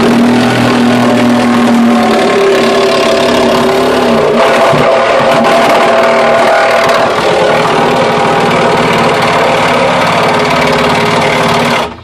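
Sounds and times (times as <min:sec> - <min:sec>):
reciprocating saw cutting wood: 0:00.0 - 0:12.0.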